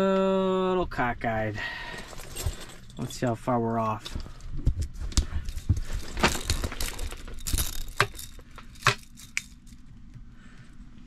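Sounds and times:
tape measure clicking and rattling: 0:06.1 - 0:09.8.

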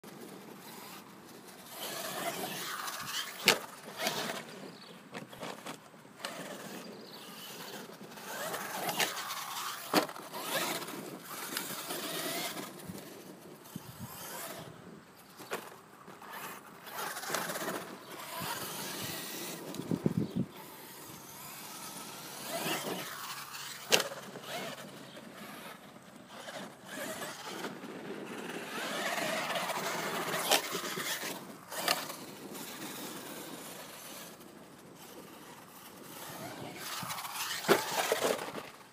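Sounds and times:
tyres on loose dirt: 0:00.0 - 0:38.9
toy truck knocking ground: 0:07.7 - 0:13.2, 0:36.0 - 0:38.8.

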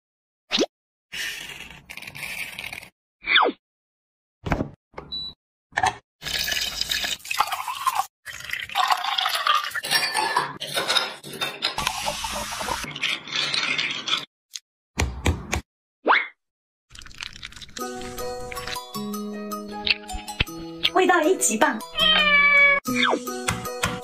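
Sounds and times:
liquid pouring into glass: 0:06.2 - 0:09.8, 0:16.9 - 0:18.8
ice clinking: 0:06.2 - 0:14.3.

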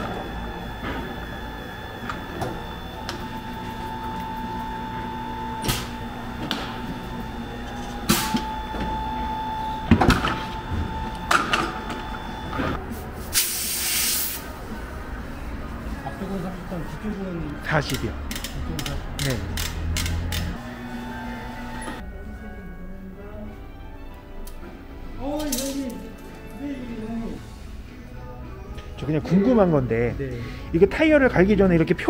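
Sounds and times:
machine hum with whine: 0:00.0 - 0:12.8, 0:19.6 - 0:22.0
compressed air hiss: 0:13.3 - 0:14.5.

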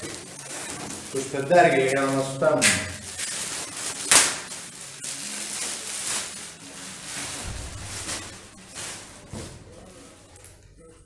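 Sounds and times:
plastic wrap crackling and rustling: 0:00.0 - 0:11.0
plastic film snapping: 0:02.0 - 0:06.4.

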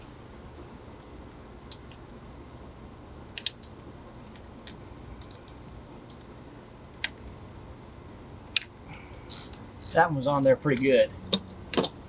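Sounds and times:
steady low hum: 0:00.0 - 0:12.0
wrench clicking on bolts: 0:09.3 - 0:11.9.

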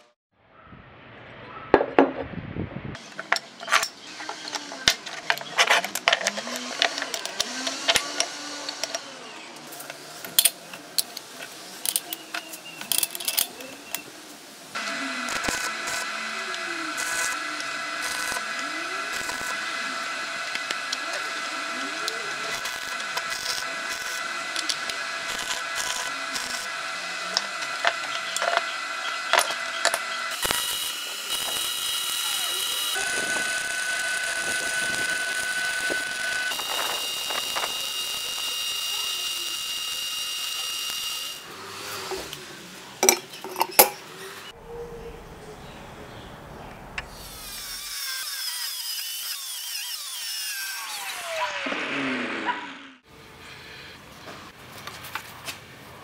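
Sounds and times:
welding arc hissing and crackling: 0:13.9 - 0:43.0.

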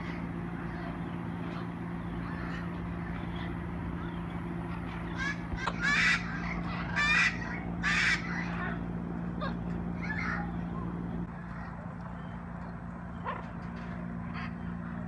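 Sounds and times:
steady low hum: 0:00.0 - 0:15.0
macaws squawking: 0:04.7 - 0:12.3.

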